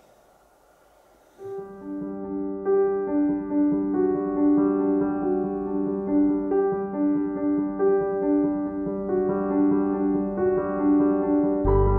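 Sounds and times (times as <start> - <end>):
slow piano melody: 0.0 - 11.9
steady low tone: 11.6 - 11.9.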